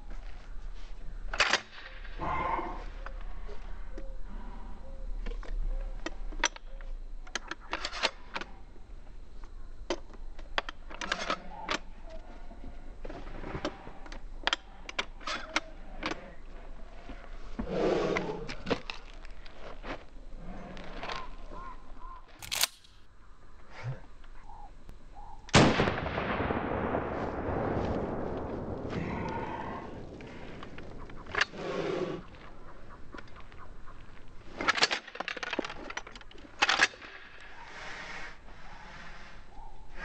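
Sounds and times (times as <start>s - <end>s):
shotgun shells clicking into magazine: 22.4s - 23.0s.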